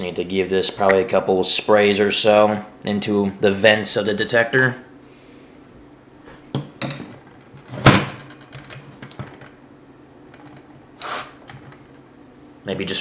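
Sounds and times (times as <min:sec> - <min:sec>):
aerosol spray hiss: 0:11.0 - 0:11.4.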